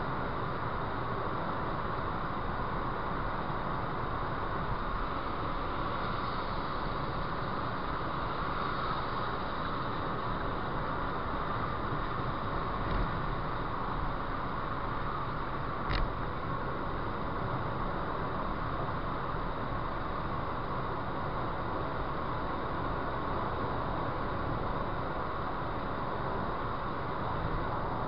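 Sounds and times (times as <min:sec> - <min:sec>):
car road and wind noise: 0:00.0 - 0:28.0
short click: 0:15.9 - 0:16.1.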